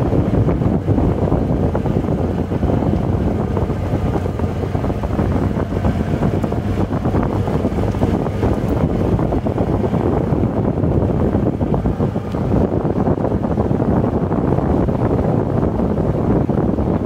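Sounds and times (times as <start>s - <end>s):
wind buffeting microphone: 0.0s - 17.0s
tyres rolling on dirt road: 2.2s - 9.3s.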